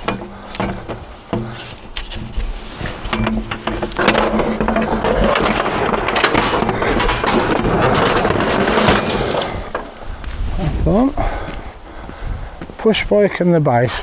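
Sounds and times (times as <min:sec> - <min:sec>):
scrap metal scraping and clattering: 0:00.0 - 0:10.4.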